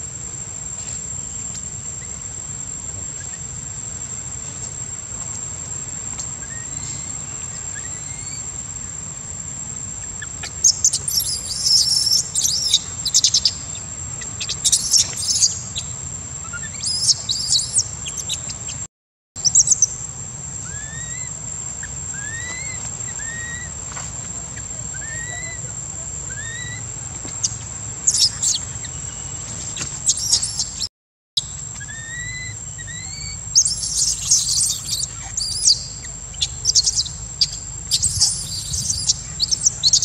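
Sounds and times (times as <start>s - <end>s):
high-pitched insect drone: 0.5s - 18.8s, 19.4s - 30.8s, 31.4s - 40.0s
birds chirping: 0.9s - 40.0s
loud quick high chirps: 30.1s - 40.0s.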